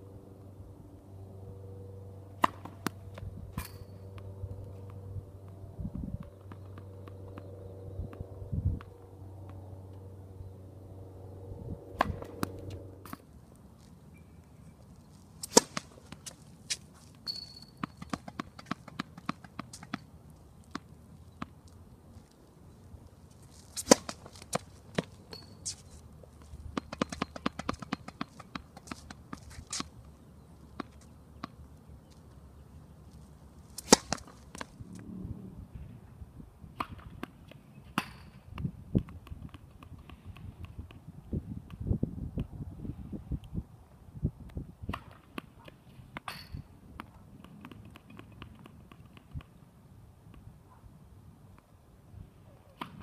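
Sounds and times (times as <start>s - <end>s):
tennis balls struck with rackets: 2.3s - 5.6s, 11.9s - 13.3s, 15.4s - 21.6s, 23.6s - 25.8s, 26.7s - 30.0s, 30.7s - 31.6s, 33.7s - 34.8s, 36.7s - 41.1s, 44.9s - 49.6s, 52.8s - 53.0s.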